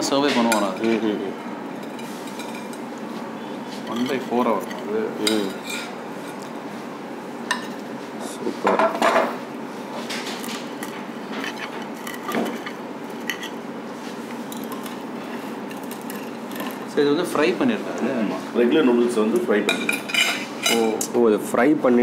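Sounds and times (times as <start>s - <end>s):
restaurant room noise: 0.0s - 22.0s
metal utensils clinking on plates: 0.2s - 1.2s, 1.8s - 2.8s, 3.8s - 6.5s, 10.1s - 13.6s, 19.3s - 21.1s.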